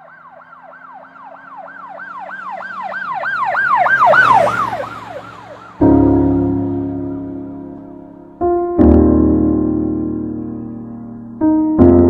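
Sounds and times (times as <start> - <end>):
passing vehicle rush: 0.0 - 8.4
ambulance siren wailing: 0.0 - 8.6, 9.3 - 11.6.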